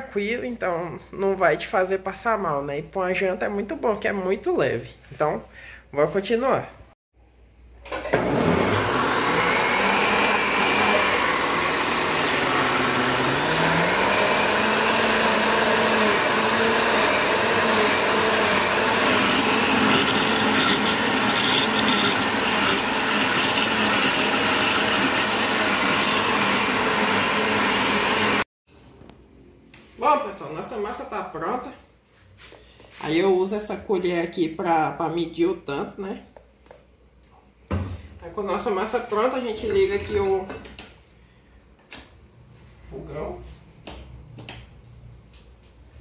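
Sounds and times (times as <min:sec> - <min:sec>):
blender motor running: 0:08.0 - 0:28.5.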